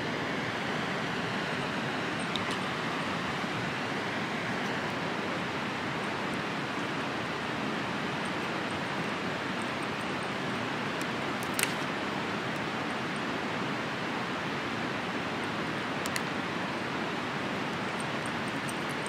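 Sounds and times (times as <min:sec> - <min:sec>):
river rushing: 0:00.0 - 0:19.0
twig fire crackling: 0:09.6 - 0:12.5.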